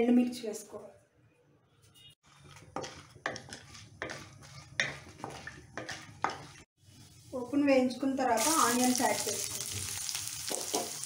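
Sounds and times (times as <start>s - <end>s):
wooden spatula scraping a pan: 2.3s - 8.0s
food frying in oil: 8.3s - 11.0s.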